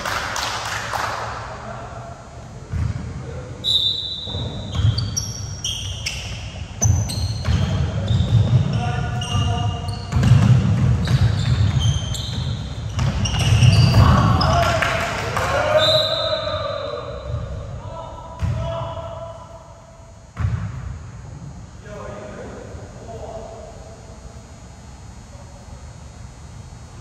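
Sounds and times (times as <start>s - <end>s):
basketball bouncing: 2.6s - 3.2s, 4.3s - 15.5s, 18.4s - 18.8s, 20.3s - 21.0s
sneaker squeaks: 2.7s - 14.9s, 15.5s - 17.7s
players' voices: 21.6s - 26.0s.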